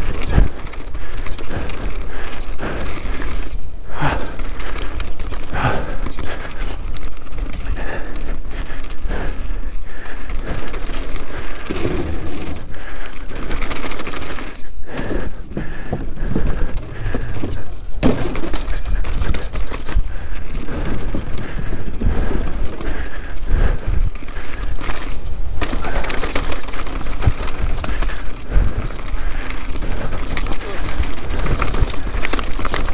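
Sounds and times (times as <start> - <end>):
bike chain and frame clatter: 0.0 - 32.9
tyres crunching over loose ground: 0.0 - 32.9.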